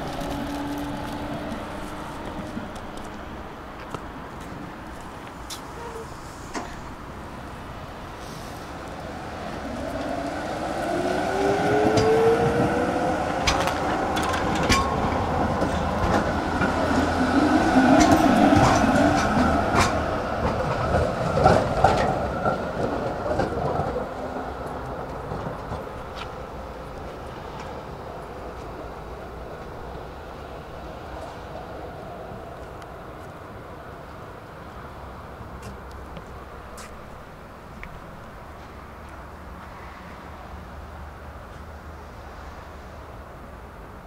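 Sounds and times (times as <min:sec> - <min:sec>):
electric tram passing on rails: 0:00.0 - 0:44.0.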